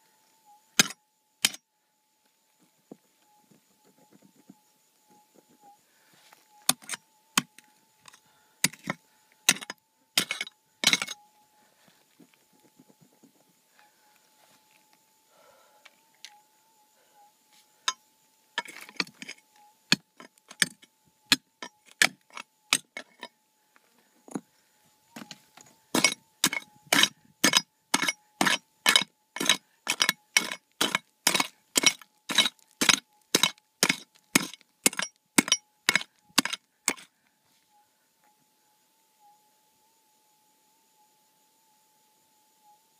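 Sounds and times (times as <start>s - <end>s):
pick striking rock: 0.8s - 1.6s, 8.6s - 11.2s, 25.2s - 37.1s.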